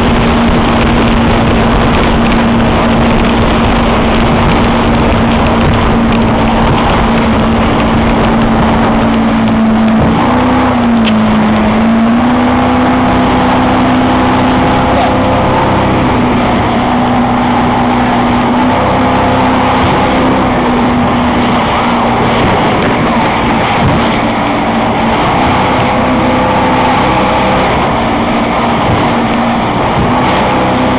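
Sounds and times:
rush of wind and water spray: 0.0 - 30.9
speedboat engine running hard: 0.0 - 30.9.

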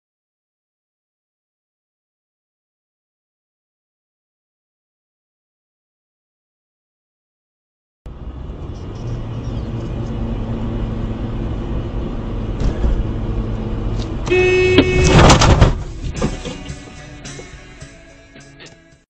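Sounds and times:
car engine and road noise: 8.1 - 19.0
car horn: 14.2 - 15.6.

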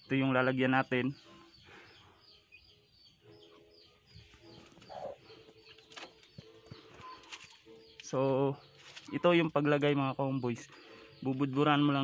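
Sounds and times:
high bird chirps: 1.0 - 9.5
low bird cooing: 4.5 - 5.8, 6.6 - 7.6.

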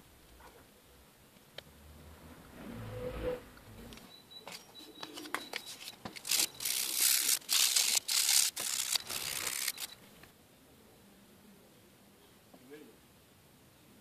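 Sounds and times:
paper crinkling: 4.5 - 10.0
sandpaper scraping steel blade: 5.6 - 9.9.

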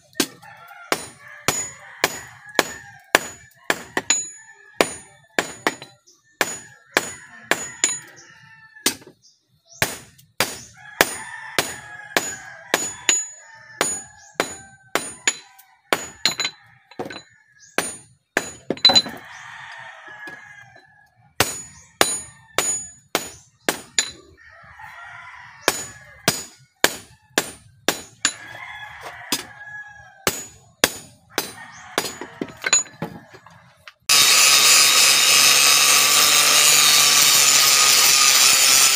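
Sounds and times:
rooster crowing: 0.2 - 5.6, 6.6 - 8.9, 10.8 - 17.6, 18.9 - 23.0, 24.0 - 26.5, 28.2 - 30.3, 31.4 - 33.9
hammer striking metal on anvil: 0.9 - 8.2, 9.8 - 19.2, 21.4 - 24.2, 25.7 - 28.4, 30.3 - 32.9
chickens clucking: 28.4 - 34.1.

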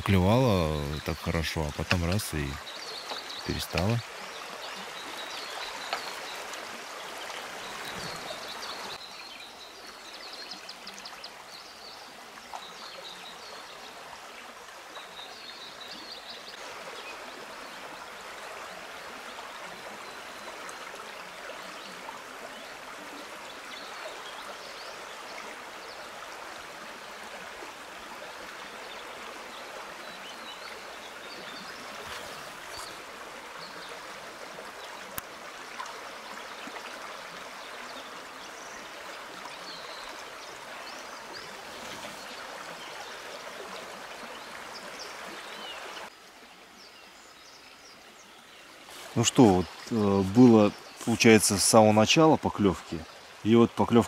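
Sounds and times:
stream trickling over its bed: 0.0 - 54.0.

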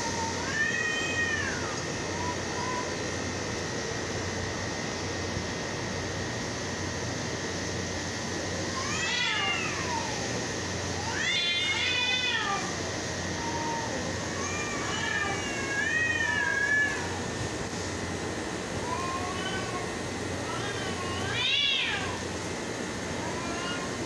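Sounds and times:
cats yowling: 0.0 - 3.0, 8.6 - 17.4, 18.8 - 22.4, 23.2 - 24.0.

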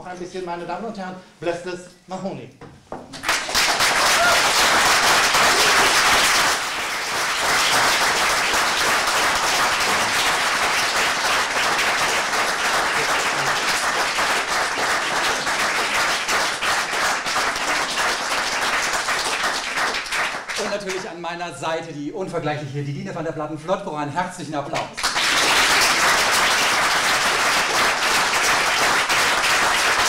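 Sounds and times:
audience applause: 3.2 - 21.1, 25.0 - 30.0.

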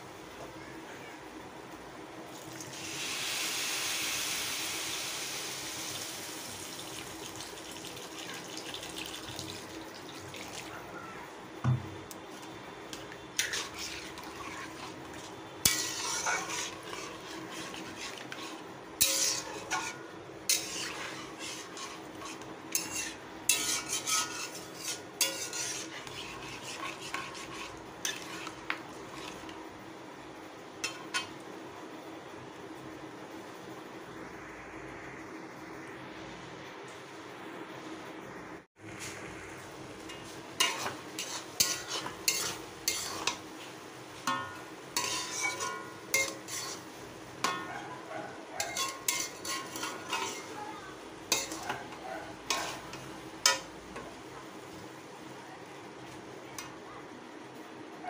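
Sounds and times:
water sizzling in hot pan: 2.3 - 10.7, 13.4 - 29.3
metal spatula scraping pan: 13.4 - 29.6, 40.1 - 43.4, 44.3 - 47.7, 48.6 - 53.7.

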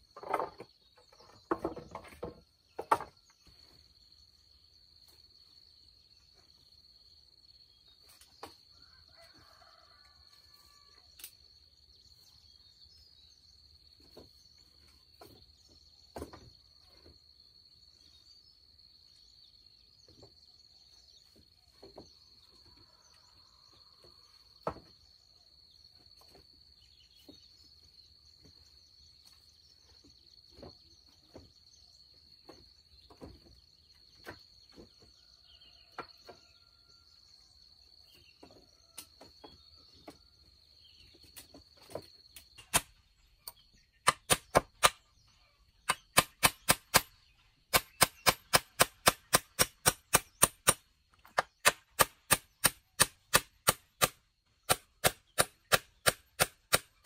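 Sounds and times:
insects droning: 0.0 - 57.0.

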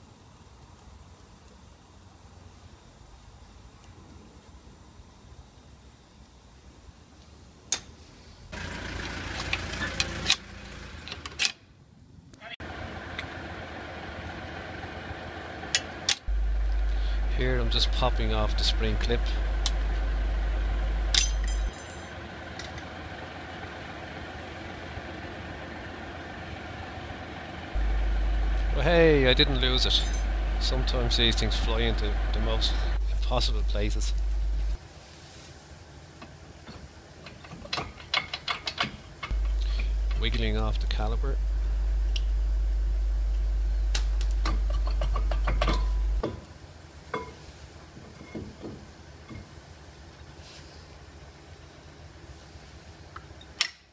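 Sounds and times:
low background hum: 7.6 - 53.9
metallic ringing jangle: 21.1 - 22.2, 29.9 - 30.4
metallic clicks and rattles: 37.2 - 40.4
metal clunks with short rings: 47.1 - 47.4
metal clip snapping with click: 53.6 - 53.9.

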